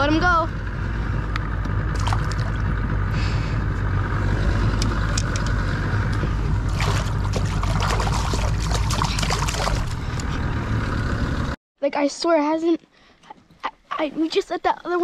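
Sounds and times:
low rumble: 0.0s - 11.6s
fish splashing in water: 1.9s - 2.6s, 6.4s - 10.2s.

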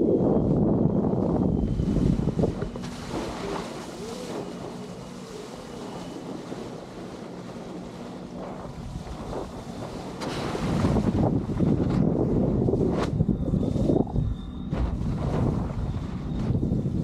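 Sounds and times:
faint electric motor hum: 0.0s - 17.0s
wind buffeting microphone: 0.0s - 17.0s.

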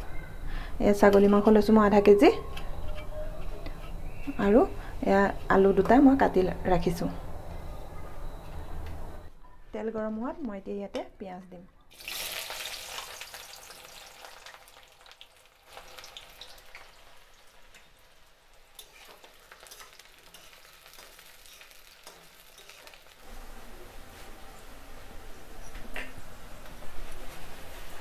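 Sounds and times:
oil crackling: 11.9s - 23.3s
onions sizzling in hot oil: 11.9s - 23.3s.

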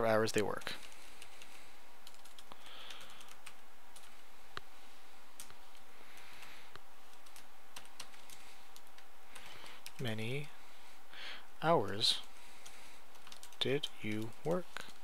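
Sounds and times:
background hiss: 0.0s - 15.0s
keyboard typing: 0.5s - 4.2s, 7.1s - 10.5s, 11.8s - 15.0s.

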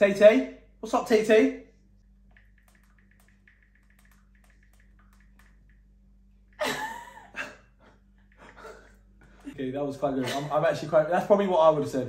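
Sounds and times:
people laughing: 6.6s - 10.8s.

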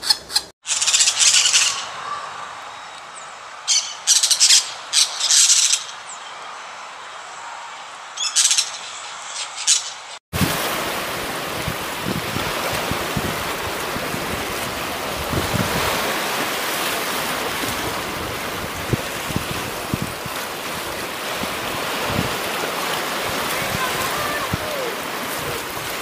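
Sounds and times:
small waves splashing: 10.3s - 26.0s
water washing against rocks: 10.4s - 26.0s.

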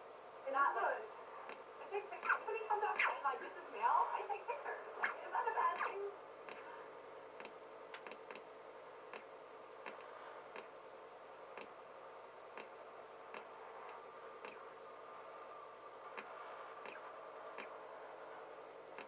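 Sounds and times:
steady low hiss and hum: 0.0s - 19.0s
faint irregular clicks: 1.4s - 2.4s, 5.8s - 6.7s, 7.4s - 8.5s, 9.1s - 10.8s, 11.5s - 11.8s, 12.5s - 14.7s, 16.1s - 17.8s.

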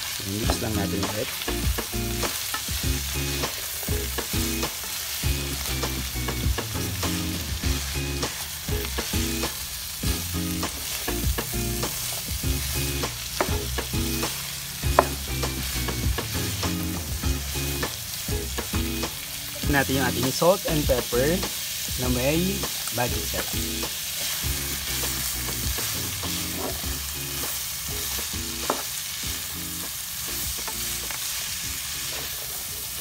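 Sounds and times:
vegetables sizzling in pan: 0.0s - 33.0s
spatula scraping and tapping pan: 25.5s - 26.9s, 28.6s - 28.9s.

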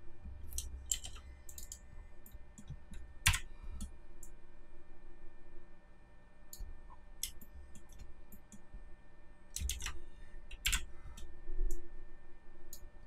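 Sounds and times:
keyboard keys clicking: 0.5s - 1.8s, 2.6s - 3.4s, 9.6s - 10.9s.

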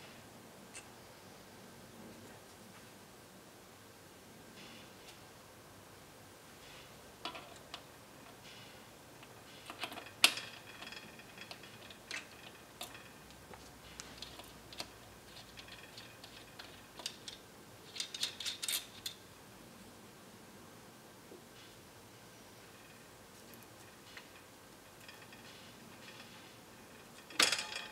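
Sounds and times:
small metal parts clicking: 9.2s - 19.2s, 22.7s - 27.9s.

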